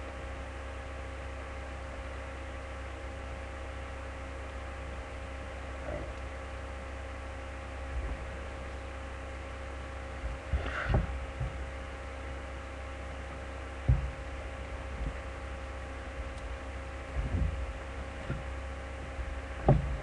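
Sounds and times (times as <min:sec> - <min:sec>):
steady electrical hum: 0:00.0 - 0:20.0
handling rustle and knocks: 0:09.7 - 0:12.6, 0:13.2 - 0:20.0.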